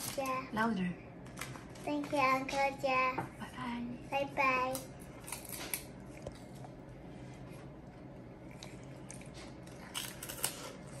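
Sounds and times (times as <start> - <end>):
child chewing crisp wafer: 4.8 - 11.0.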